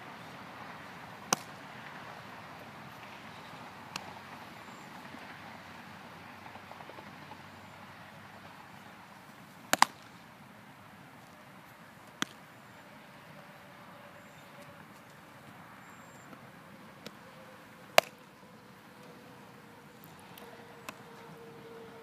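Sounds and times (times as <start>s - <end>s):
baseball smacking into glove: 1.3s - 1.5s, 9.7s - 10.0s.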